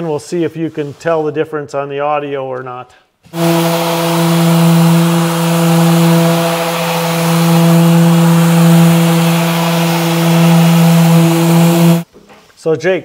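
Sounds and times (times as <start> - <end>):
orbital sander humming: 3.4 - 12.0
sanding hiss on wood: 3.4 - 12.0.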